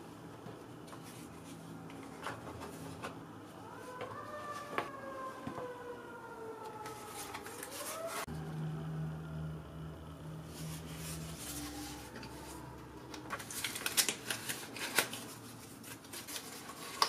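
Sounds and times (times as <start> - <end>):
siren-like wailing tone: 3.6 - 13.3
paper boxes being handled: 6.7 - 8.3, 10.5 - 17.0.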